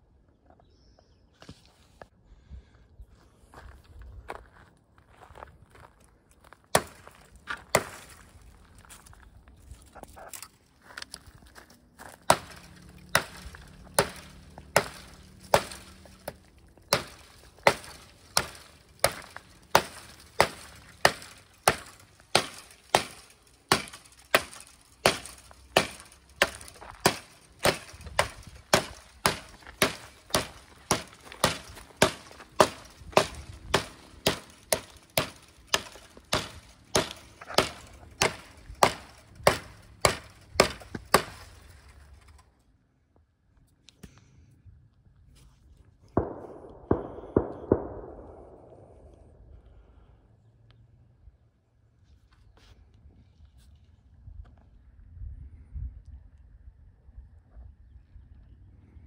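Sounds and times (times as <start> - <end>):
knife chopping wood: 12.2 - 41.4.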